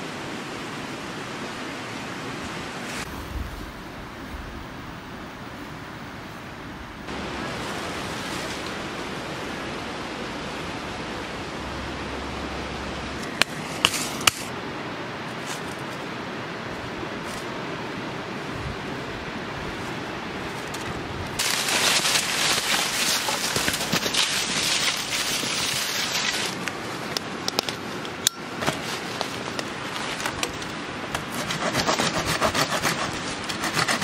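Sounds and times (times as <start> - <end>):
river running over rocks: 7.1 - 31.8
crackling rustle: 15.2 - 34.0.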